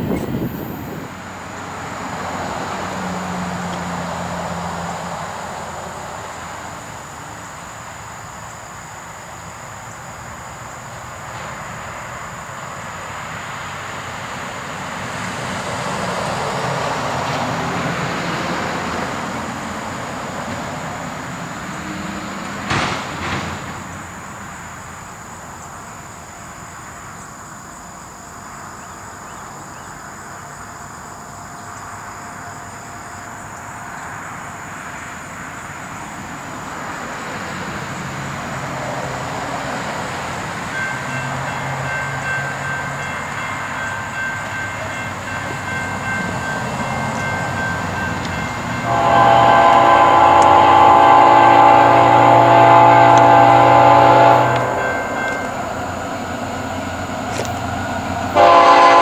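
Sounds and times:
diesel locomotive rumble: 0.0s - 59.0s
train air horn blast: 48.8s - 55.4s, 58.4s - 59.0s.

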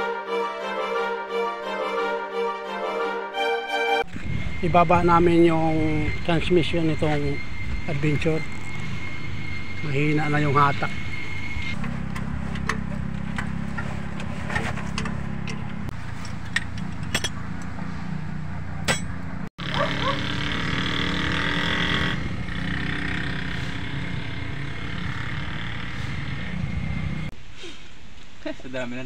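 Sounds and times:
low mechanical rumble: 4.1s - 19.5s.

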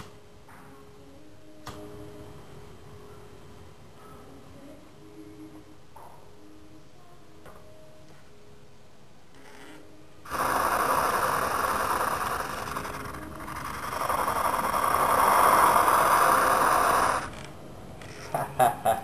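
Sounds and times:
torch flame hissing: 10.3s - 17.4s.

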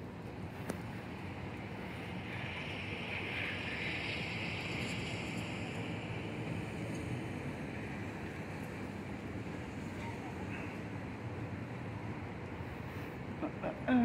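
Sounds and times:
outdoor rushing noise: 0.0s - 13.4s
hiss: 1.7s - 7.0s.

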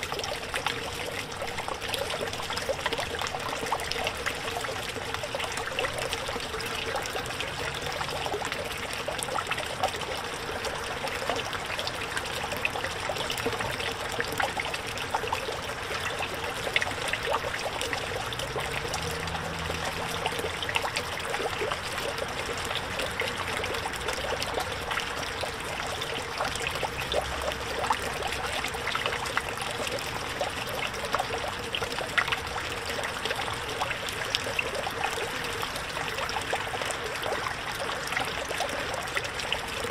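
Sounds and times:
fountain water splashing: 0.0s - 39.9s.

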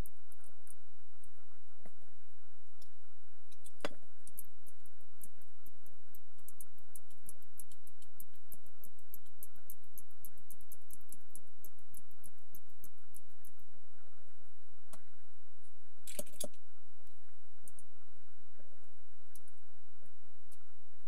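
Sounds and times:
faint crackling clicks: 2.7s - 13.7s.

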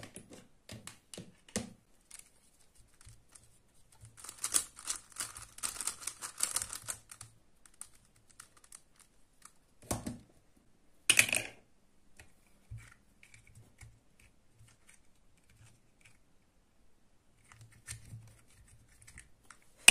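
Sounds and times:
plastic puzzle clicking turns: 4.1s - 9.6s.

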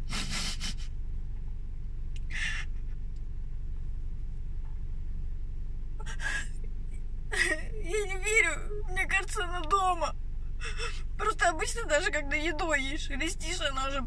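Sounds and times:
woman crying and sniffing: 0.0s - 0.9s, 2.3s - 2.8s, 6.0s - 6.5s, 10.6s - 11.1s
car idling hum inside cabin: 0.0s - 14.0s.

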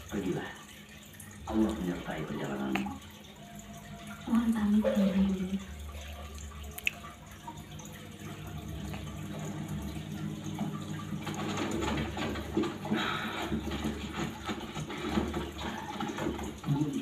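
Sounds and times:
running water: 0.0s - 17.0s.

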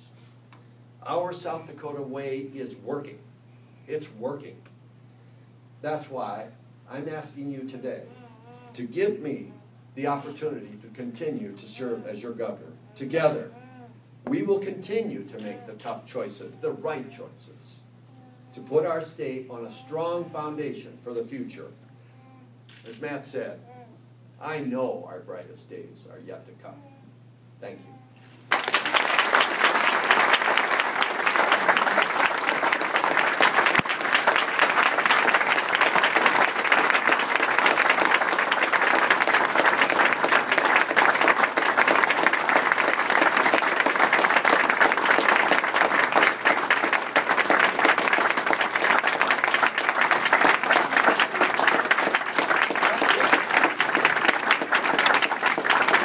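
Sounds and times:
crowd applauding: 28.5s - 56.0s.

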